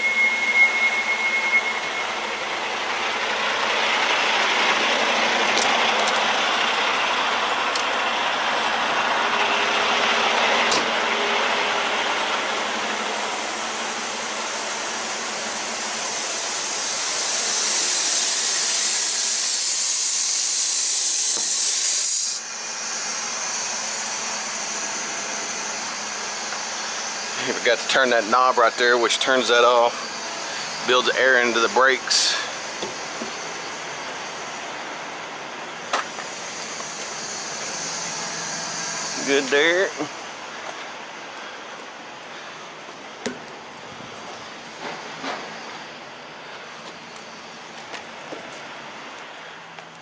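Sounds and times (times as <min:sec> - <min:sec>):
compressed air hissing: 0:12.5 - 0:33.8.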